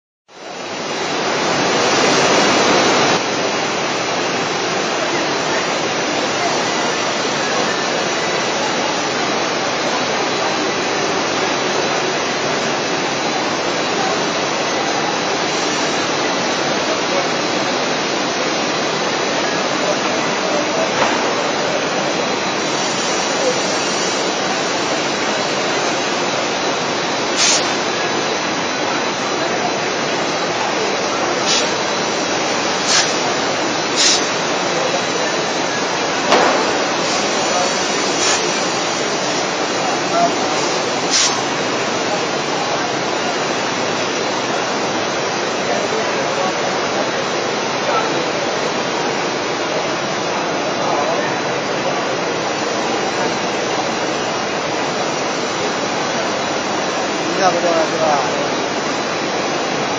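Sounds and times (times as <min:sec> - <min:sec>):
busy exhibition hall din: 0:00.4 - 0:59.9
machinery running: 0:03.8 - 0:44.9
short hiss: 0:27.4 - 0:27.8, 0:31.4 - 0:31.8, 0:32.8 - 0:33.2, 0:33.9 - 0:34.4, 0:36.3 - 0:39.5, 0:40.6 - 0:41.6.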